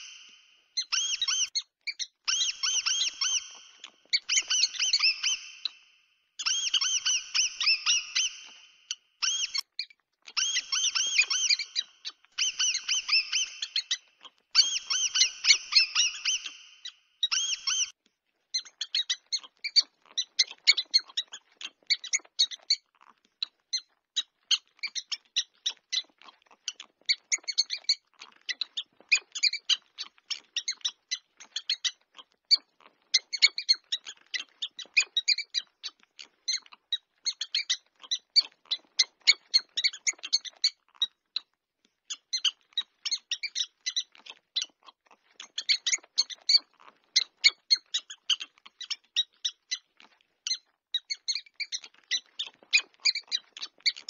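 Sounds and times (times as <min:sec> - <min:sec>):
mouse squealing: 0:00.0 - 0:05.8, 0:06.4 - 0:09.6, 0:10.3 - 0:17.9, 0:45.4 - 0:54.0
mouse squeaking: 0:00.0 - 0:54.0.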